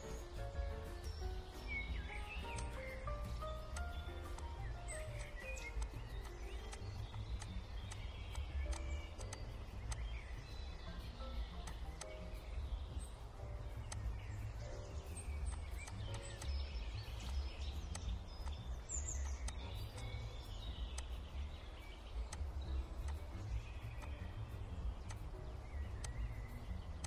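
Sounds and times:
faint high chirps: 0.0s - 27.0s
low background rumble: 0.0s - 27.0s
light clicks: 2.4s - 12.5s, 13.4s - 26.7s.

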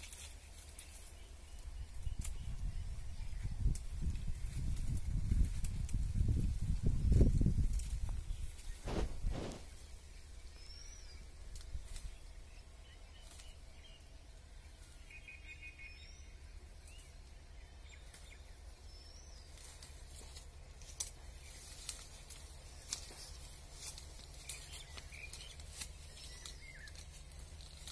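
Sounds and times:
branches and vines rustling: 0.0s - 27.9s
low steady rumble: 0.0s - 27.9s
bird chirping: 8.3s - 19.8s, 24.3s - 27.2s
branch cracking: 19.5s - 27.9s.

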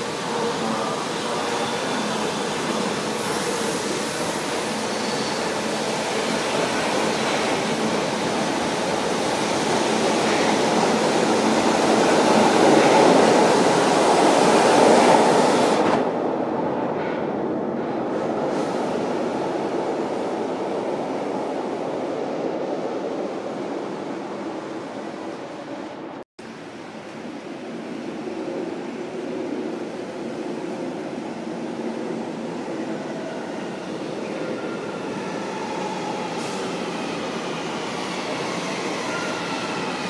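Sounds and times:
train pulling out: 32.8s - 40.0s.

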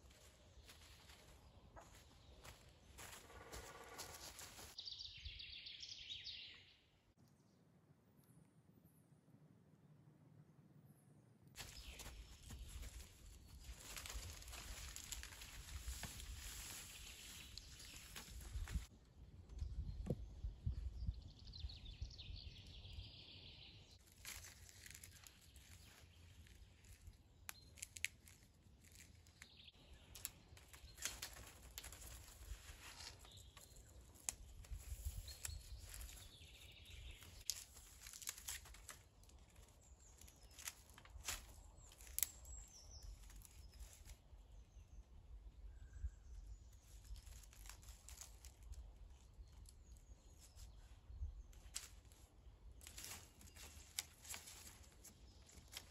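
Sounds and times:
dry reeds rustling: 0.0s - 4.8s, 11.6s - 18.9s, 24.0s - 44.3s, 46.7s - 55.9s.

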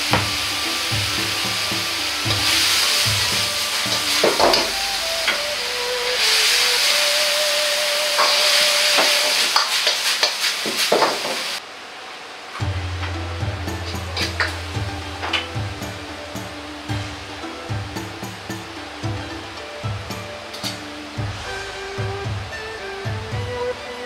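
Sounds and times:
metal ladle scraping a wok: 0.0s - 7.1s
sauce sizzling in a wok: 0.0s - 11.6s.

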